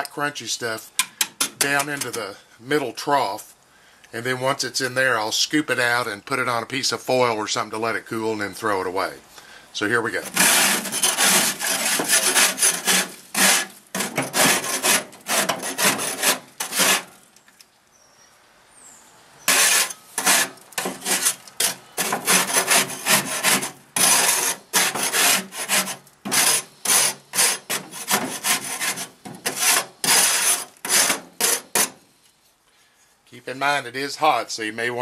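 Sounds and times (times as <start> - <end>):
scraper rasping on metal pan: 10.2 - 17.1, 19.5 - 32.0.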